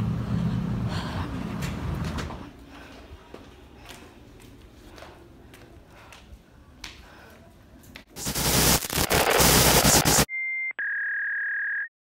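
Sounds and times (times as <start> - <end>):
loud static hiss: 8.2 - 10.3.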